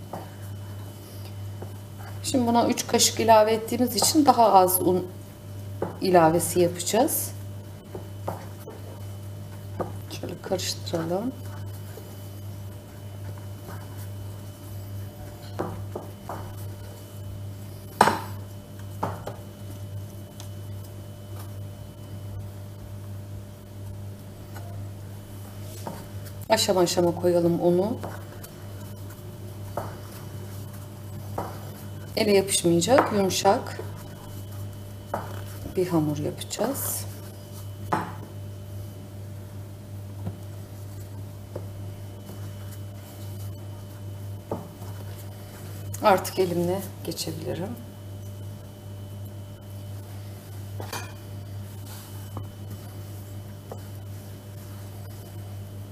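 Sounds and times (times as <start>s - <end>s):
steady low hum: 0.0s - 55.9s
spoon tapping mixing bowl: 32.9s - 34.0s.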